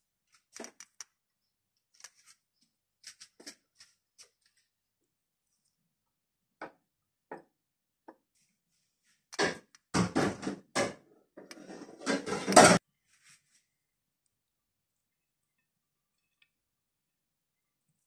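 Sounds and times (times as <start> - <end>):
utensils knocking and scraping dishes: 9.4 - 12.8.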